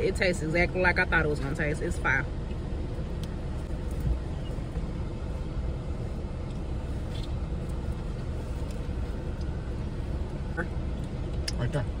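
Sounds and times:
car idling inside cabin: 0.0 - 12.0.

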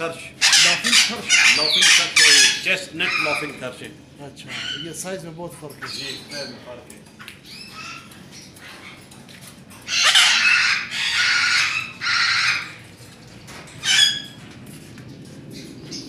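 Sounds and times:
parrots squawking: 0.0 - 3.8, 4.4 - 6.7, 7.3 - 14.5.

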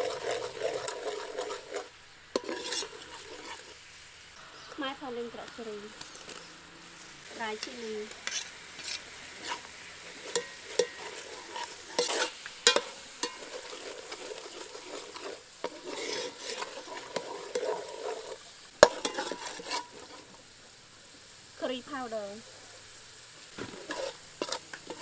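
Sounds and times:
metal ladle scraping pot: 0.0 - 3.8, 5.4 - 6.5, 7.5 - 20.4, 23.6 - 25.0.

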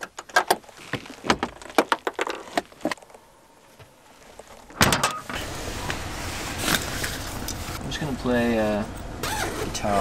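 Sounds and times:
rustling: 0.0 - 7.8.

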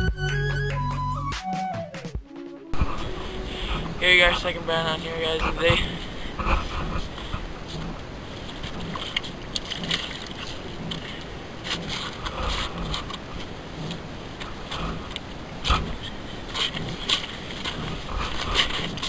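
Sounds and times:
fish flopping on ice: 7.2 - 19.0.

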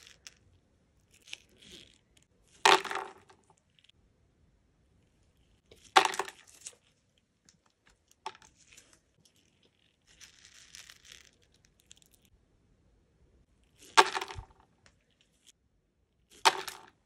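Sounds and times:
wax beads clattering into pot: 0.0 - 0.4, 9.5 - 12.3
fingers sifting wax beads: 0.0 - 3.9, 8.2 - 12.3.

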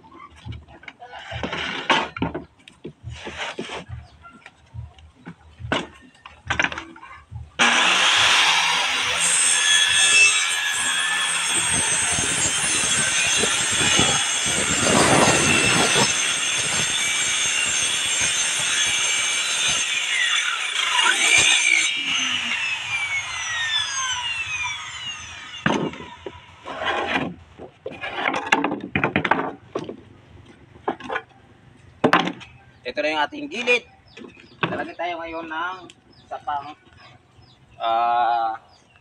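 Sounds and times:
knocks and scrapes: 0.0 - 7.6, 25.6 - 32.6
circular saw cutting plywood: 7.6 - 29.5.

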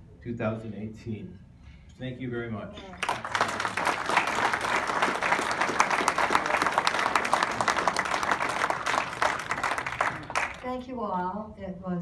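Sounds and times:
audience applauding: 3.0 - 10.7.

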